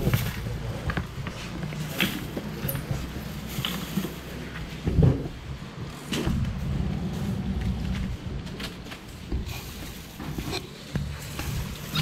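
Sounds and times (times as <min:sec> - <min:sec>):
low steady rumble: 0:02.8 - 0:10.1.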